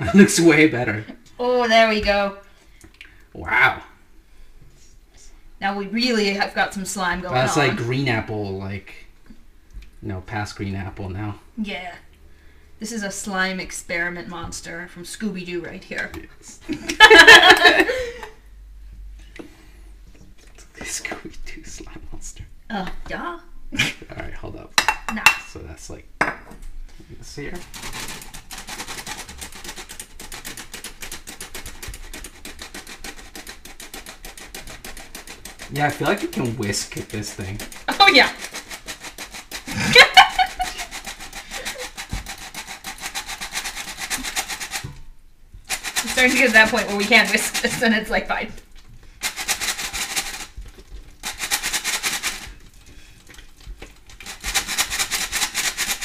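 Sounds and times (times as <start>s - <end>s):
metal flour sifter rattling: 27.2s - 44.9s, 45.7s - 48.4s, 49.2s - 52.7s, 54.1s - 56.0s.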